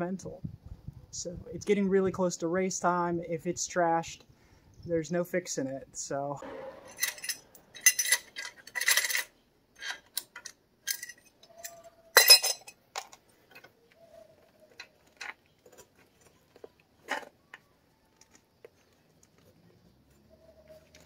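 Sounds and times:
loud metallic clatter: 6.4 - 9.3
metal tools clinking on engine: 6.9 - 13.1.

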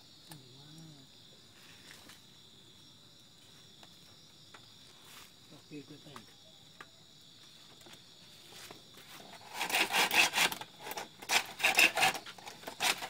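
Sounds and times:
crickets trilling: 0.0 - 13.0
hand saw cutting bamboo: 9.2 - 13.0.

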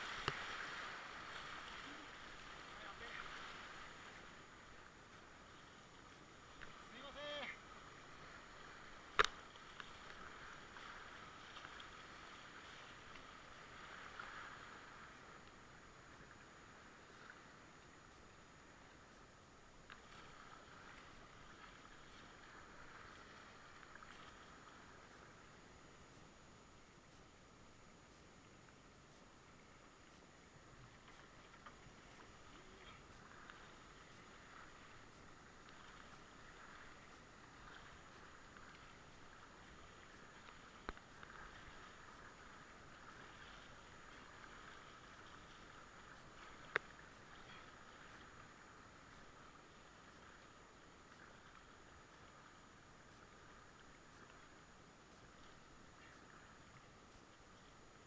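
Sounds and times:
river rushing: 0.0 - 5.5
paddle splashes: 0.0 - 58.0
light ticks: 0.2 - 0.4, 9.1 - 10.2, 15.0 - 16.3, 17.0 - 20.2, 26.0 - 43.2, 44.0 - 49.4.

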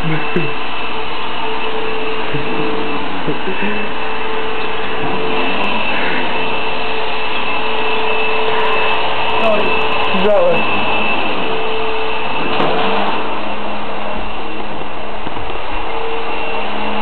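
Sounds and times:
vacuum cleaner running: 0.0 - 17.0.

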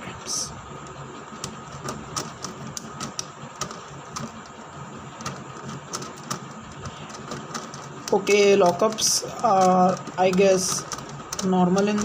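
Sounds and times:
plastic puzzle clicking: 5.2 - 12.0.

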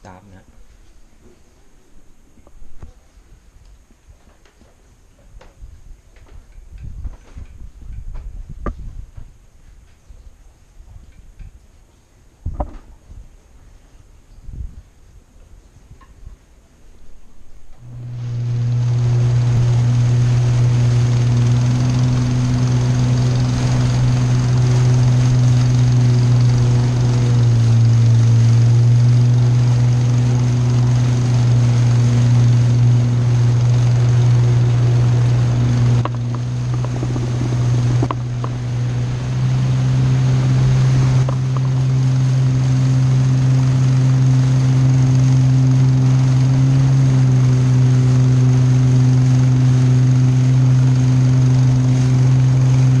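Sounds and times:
boat engine humming: 17.8 - 53.0.

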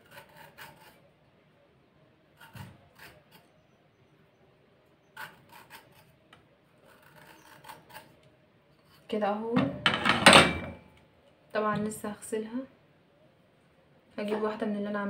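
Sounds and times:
metal corer rasping vegetable skin: 0.0 - 1.1, 2.4 - 3.6, 5.2 - 9.2.

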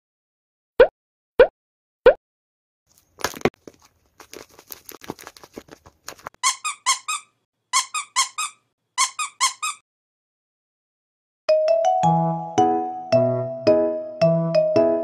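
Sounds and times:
taped paper crinkling: 2.9 - 6.4
squeaky toy squeaks: 6.4 - 9.8.

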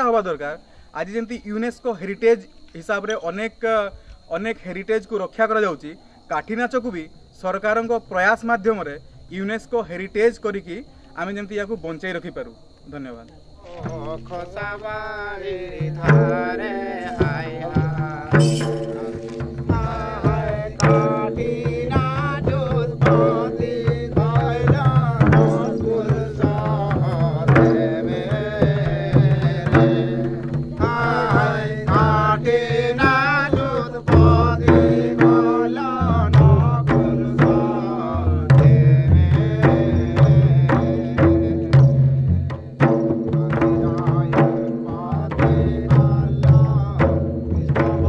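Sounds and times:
hand drums beating: 15.8 - 48.0
wavering high melody: 18.3 - 19.8.

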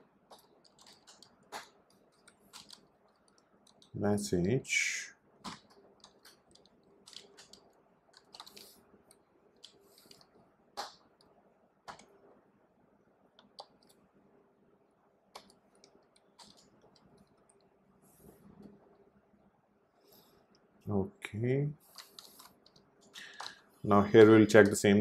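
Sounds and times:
computer keyboard typing: 0.3 - 4.0, 5.4 - 11.0, 11.9 - 12.1, 15.3 - 17.7, 21.9 - 23.6.

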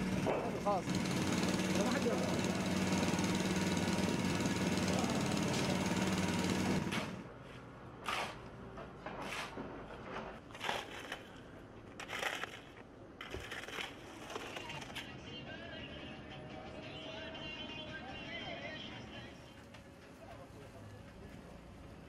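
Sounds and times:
motor hum: 0.0 - 7.3.

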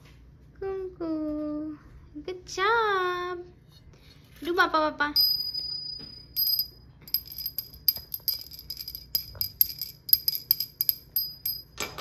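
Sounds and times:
small brass hand bell ringing: 5.2 - 11.8.

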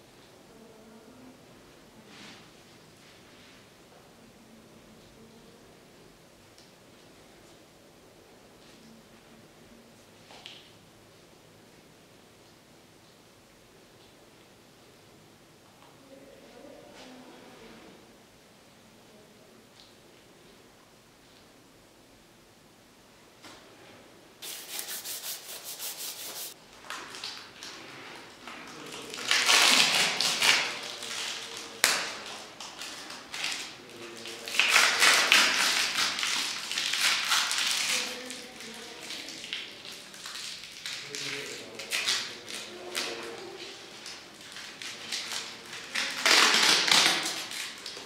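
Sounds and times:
scratchy rubbing and rustling: 24.4 - 26.6.

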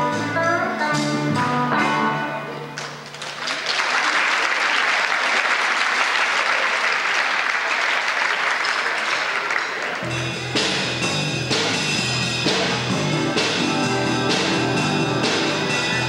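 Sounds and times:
amplified guitar music: 0.0 - 2.9, 10.0 - 16.0
audience applauding: 2.8 - 10.1.

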